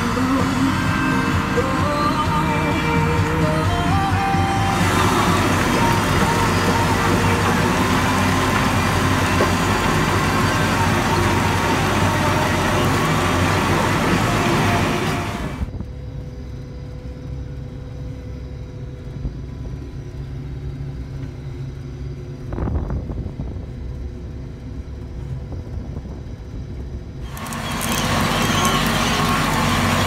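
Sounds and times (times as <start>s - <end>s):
tractor ploughing rushing noise: 0.0s - 15.7s, 27.2s - 30.0s
combine harvester droning: 0.0s - 30.0s.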